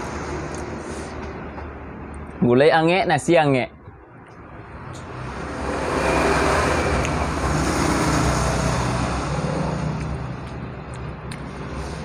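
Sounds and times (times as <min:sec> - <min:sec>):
motor vehicle passing: 0:04.0 - 0:12.0.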